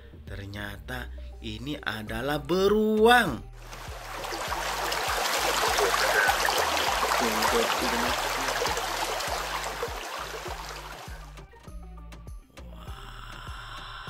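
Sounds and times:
stream running over rocks: 3.6s - 11.3s.

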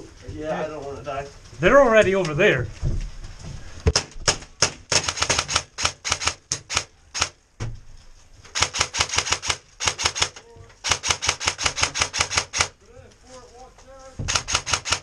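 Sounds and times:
airsoft rifles firing rapidly: 4.0s - 7.4s, 8.5s - 12.8s, 14.2s - 15.0s.

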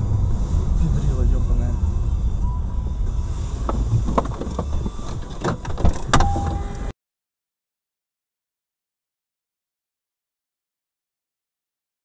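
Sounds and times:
road rumble inside moving car: 0.0s - 6.9s.

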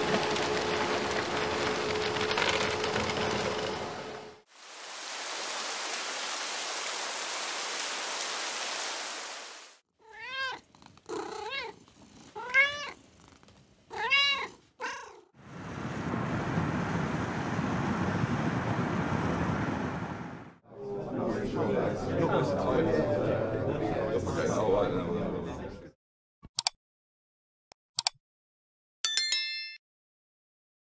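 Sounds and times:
rain hiss: 0.0s - 9.8s, 15.5s - 20.3s
cat meowing: 10.0s - 13.0s, 13.9s - 15.3s
low vehicle noise: 15.4s - 20.6s.

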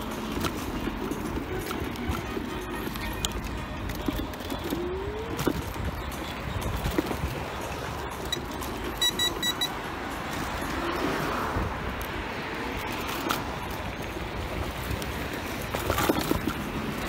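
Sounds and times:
street traffic noise: 0.0s - 17.0s
quick high beeps: 8.2s - 9.8s
short electronic beep: 8.3s - 9.8s.

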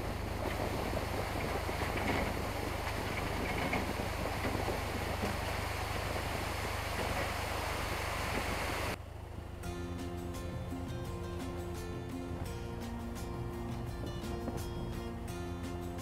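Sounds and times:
wind on microphone: 0.0s - 9.0s, 12.3s - 16.0s
boat engine droning: 0.0s - 16.0s
music: 9.6s - 16.0s.

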